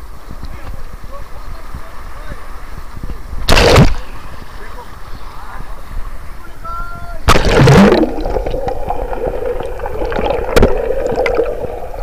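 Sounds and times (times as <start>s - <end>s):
steady hum: 7.2s - 12.0s
water splashing: 7.2s - 12.0s.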